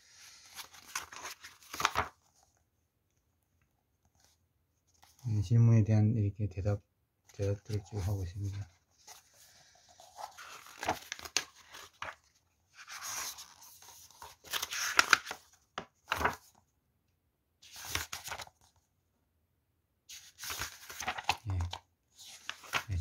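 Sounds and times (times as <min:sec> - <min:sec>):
crinkly rustling of thin sheets: 0:00.1 - 0:02.5, 0:07.4 - 0:16.5, 0:20.1 - 0:23.0.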